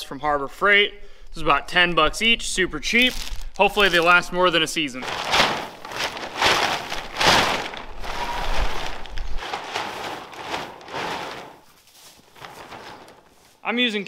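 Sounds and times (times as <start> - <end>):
plastic tarp crackling and rustling: 2.9 - 14.0.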